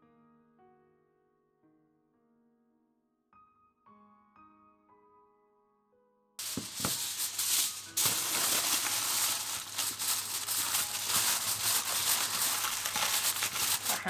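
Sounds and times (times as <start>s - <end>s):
piano tune: 6.4s - 14.0s
rustling scraping rattle: 6.4s - 14.0s.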